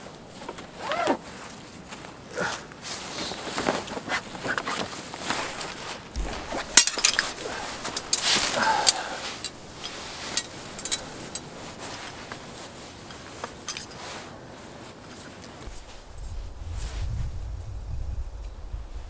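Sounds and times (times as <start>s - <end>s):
fabric bag rustling: 0.0s - 17.0s
light clinks and clicks: 5.3s - 12.4s.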